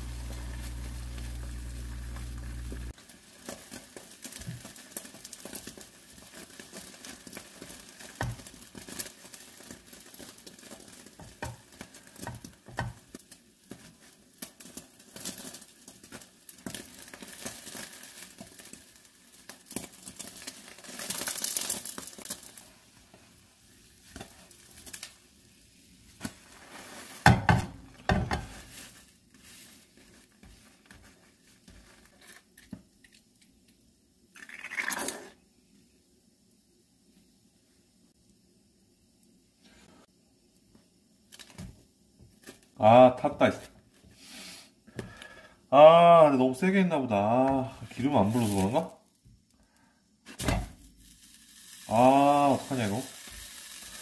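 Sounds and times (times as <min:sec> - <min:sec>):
egg sizzling in a frying pan: 0:00.0 - 0:35.4, 0:47.5 - 0:54.0.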